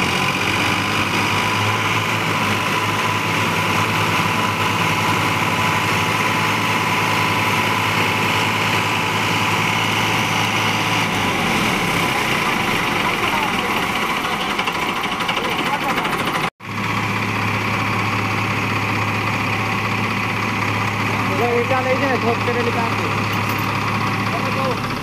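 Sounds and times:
tractor engines idling: 0.0s - 25.0s.

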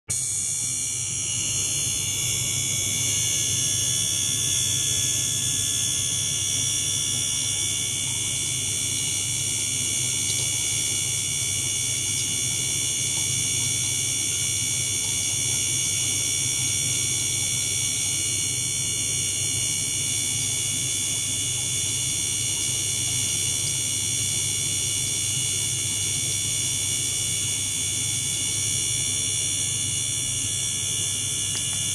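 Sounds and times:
high-pitched whine: 0.1s - 16.5s
low pump hum: 0.2s - 31.9s.

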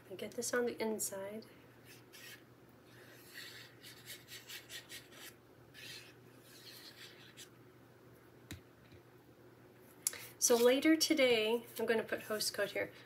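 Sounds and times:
glue nozzle scratching on card: 2.1s - 2.4s, 3.2s - 7.5s.

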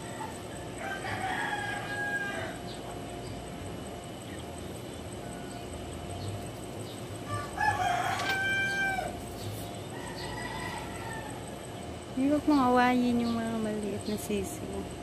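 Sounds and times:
rooster crowing: 0.0s - 2.8s, 7.2s - 11.8s.

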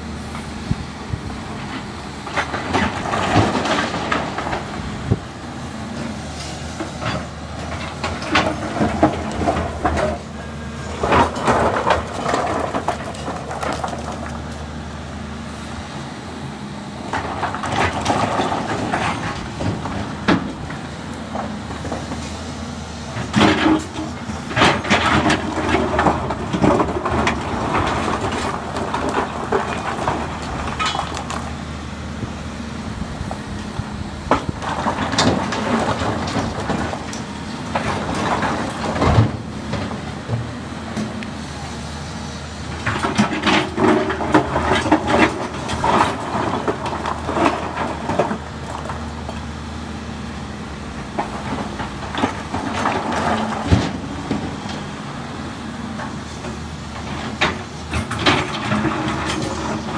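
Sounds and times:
excavator diesel engine running: 0.0s - 59.9s
rocks clattering into truck bed: 7.0s - 10.3s, 10.9s - 14.6s, 17.1s - 22.2s, 23.2s - 31.6s, 34.2s - 41.2s, 42.8s - 49.3s, 51.1s - 54.9s, 56.5s - 59.9s.

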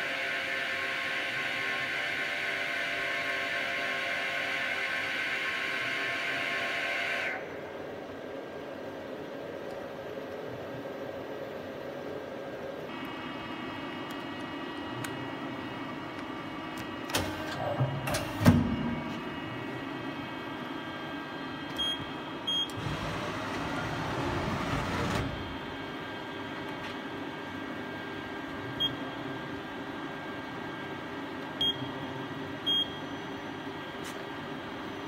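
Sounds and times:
machine knocks and clunk: 17.1s - 19.2s.

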